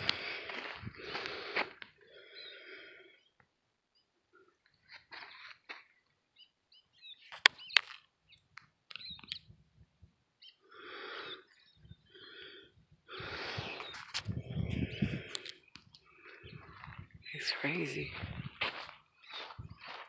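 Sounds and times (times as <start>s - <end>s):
person breathing heavily: 0.0s - 3.3s, 10.6s - 17.0s.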